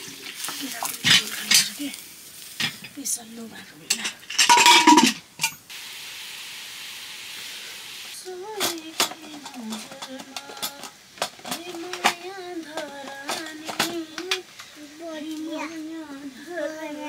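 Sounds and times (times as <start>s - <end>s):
food sizzling in a pan: 0.0s - 17.0s
metal spoon scraping a pan: 0.3s - 1.8s, 3.9s - 5.6s.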